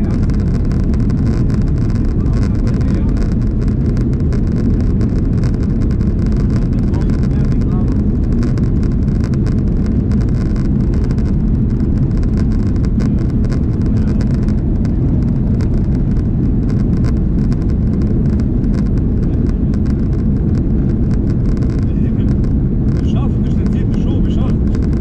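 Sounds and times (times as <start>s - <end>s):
jet engines and wheels rumbling: 0.0s - 25.0s.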